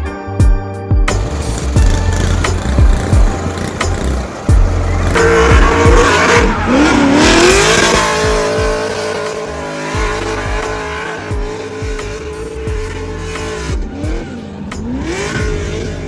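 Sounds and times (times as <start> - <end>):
thumping music beat: 0.0 - 16.0
tyres squealing: 1.2 - 8.8
car engine revving hard: 1.2 - 16.0.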